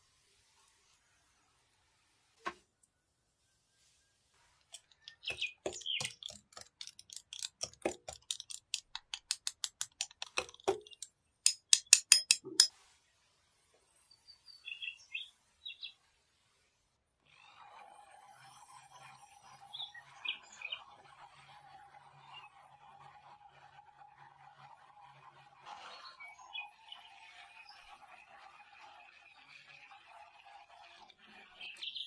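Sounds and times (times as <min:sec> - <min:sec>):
whisk rattling in plastic jug: 0:04.8 - 0:11.1.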